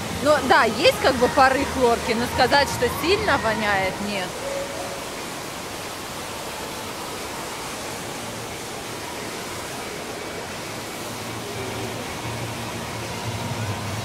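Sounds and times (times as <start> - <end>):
water rushing into pools: 0.0 - 14.0.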